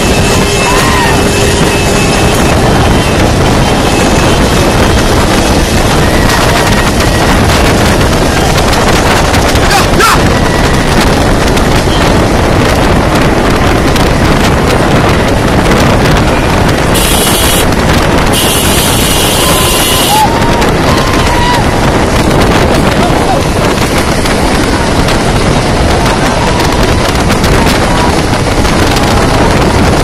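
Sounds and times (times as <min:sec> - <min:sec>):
vehicle engine and road noise: 0:00.0 - 0:30.0
wind buffeting microphone: 0:00.0 - 0:30.0.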